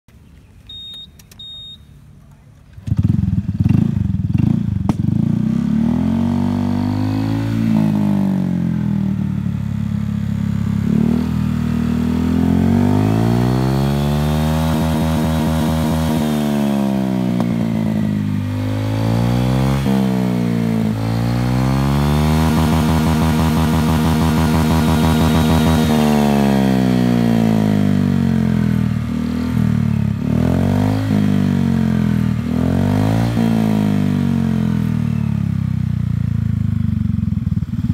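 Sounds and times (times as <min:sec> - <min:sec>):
short electronic beeps: 0:00.6 - 0:02.0
scooter engine revving: 0:02.8 - 0:37.9.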